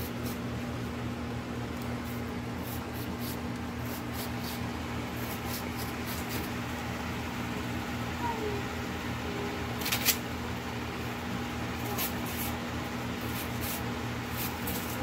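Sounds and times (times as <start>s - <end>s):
appliance hum: 0.0s - 15.0s.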